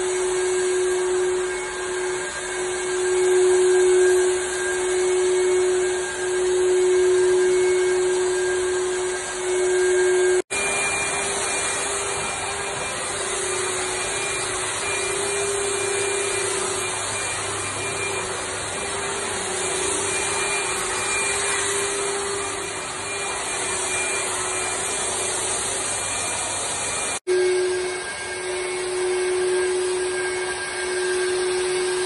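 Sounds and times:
electric sprayer motor humming: 0.0 - 32.0.

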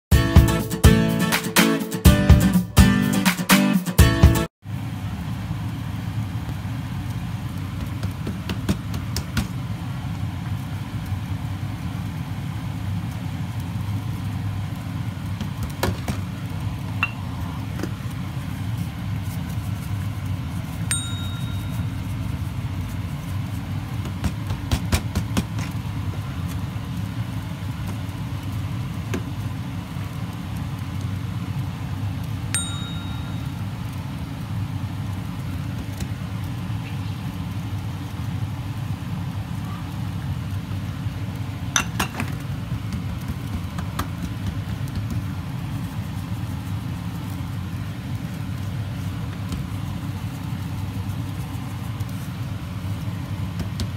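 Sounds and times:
shakers clicking and tapping: 20.7 - 22.4
short ring: 20.9 - 21.8, 32.6 - 33.4.

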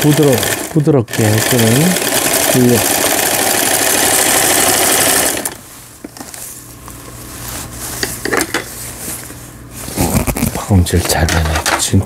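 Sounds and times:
sewing machine running fast: 0.0 - 5.6
low steady hum: 5.3 - 12.0.

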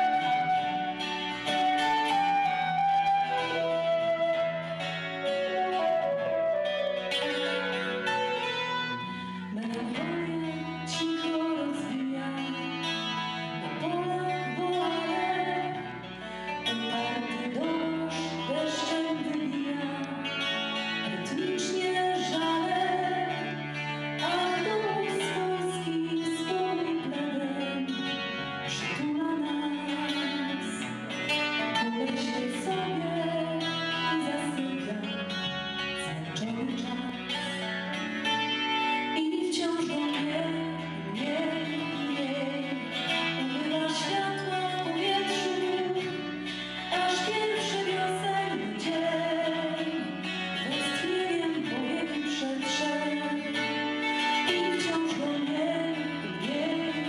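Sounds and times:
flute melody: 0.0 - 9.5
instrumental accompaniment: 0.0 - 49.0
woman singing into microphone: 0.0 - 57.0.

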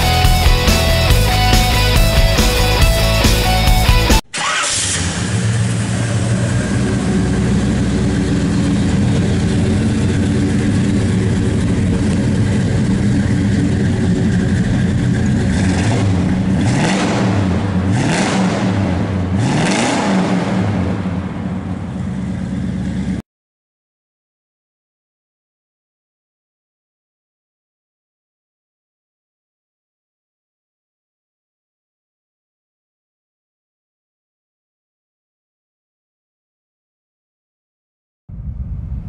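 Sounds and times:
car engine idling and revving: 0.0 - 23.2.

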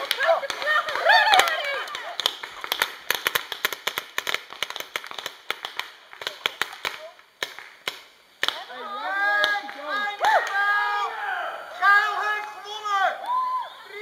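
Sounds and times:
paintball markers firing: 0.0 - 8.6.

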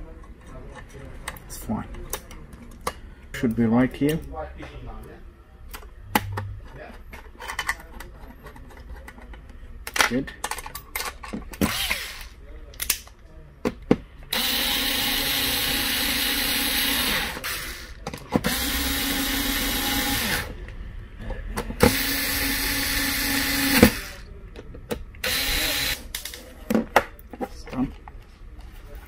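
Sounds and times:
electric screwdriver motor: 11.6 - 12.3, 14.3 - 17.9, 18.5 - 20.5, 21.8 - 24.2, 25.2 - 26.0.

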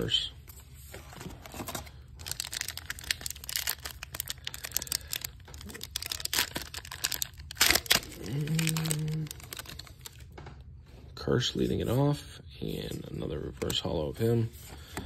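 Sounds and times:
foil wrapper crinkling: 1.2 - 10.3
foil wrapper ripping: 2.2 - 10.2.

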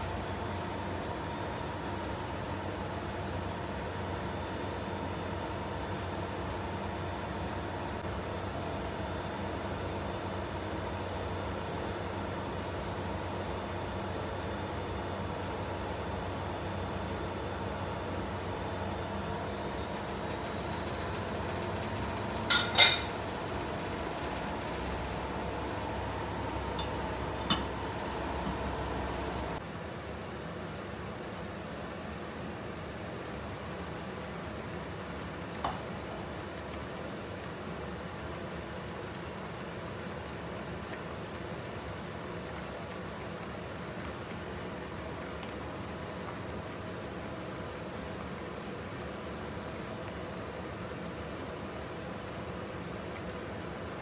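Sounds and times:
low kitchen hum: 0.0 - 54.0
soup boiling and bubbling: 0.0 - 54.0
kitchenware clinking: 22.5 - 23.2.

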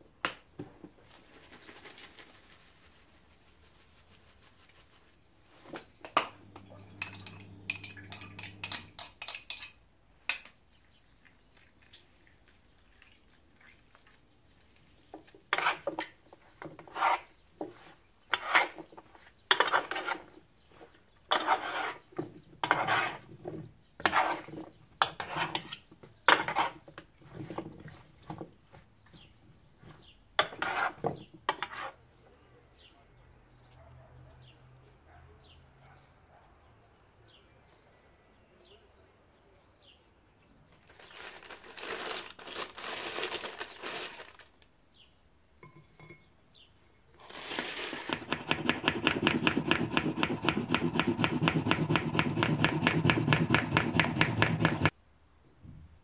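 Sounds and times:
metal spoon scraping roasting pan: 6.8 - 10.5, 16.8 - 18.9, 19.5 - 20.4, 21.3 - 23.3, 24.0 - 26.8, 30.4 - 32.0.

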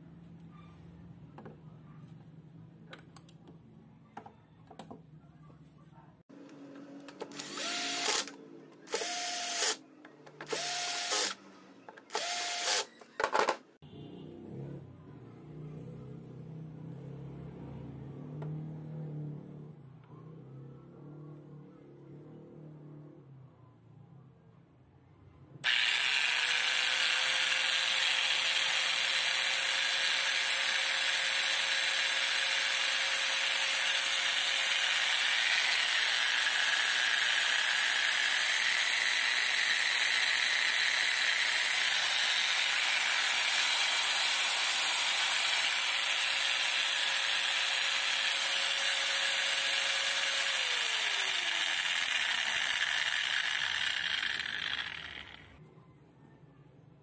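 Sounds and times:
angle grinder motor whining: 6.4 - 9.8, 10.4 - 11.4, 12.0 - 13.0, 25.6 - 55.6.

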